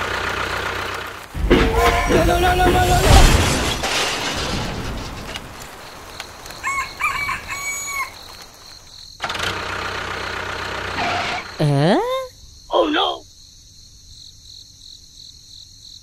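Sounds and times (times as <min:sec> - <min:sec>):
rooster crowing: 0:06.5 - 0:08.4.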